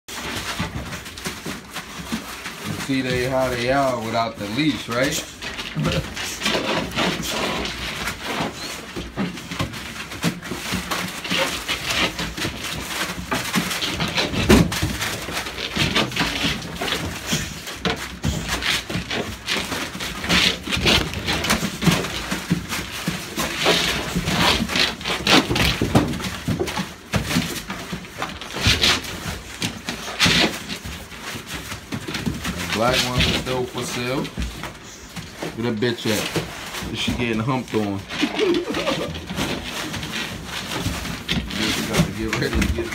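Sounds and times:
paper crinkling under paws: 0:00.1 - 0:42.9
fur rubbing on phone: 0:37.8 - 0:40.7.

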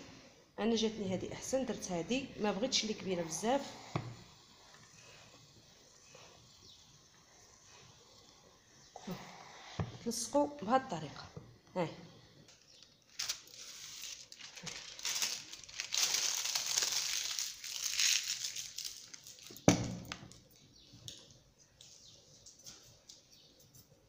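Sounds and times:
fabric rustling and crinkling: 0:12.7 - 0:19.6.

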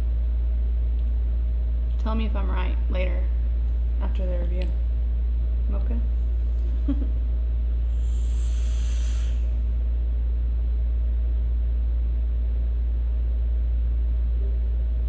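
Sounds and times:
steady low hum: 0:00.0 - 0:15.0
e-cigarette drag hiss: 0:07.9 - 0:09.6.

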